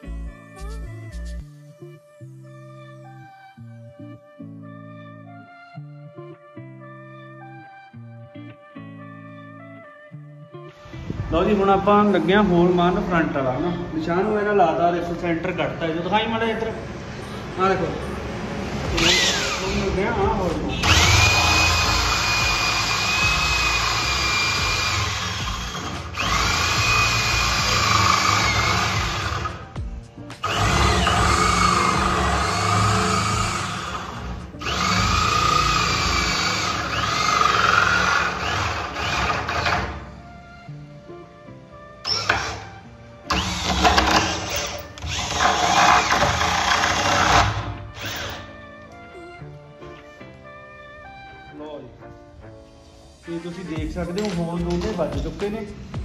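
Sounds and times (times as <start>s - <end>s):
background music: 0.0s - 56.0s
electric drill boring into wood: 18.9s - 19.9s, 20.8s - 29.7s, 30.4s - 40.1s, 42.0s - 48.5s.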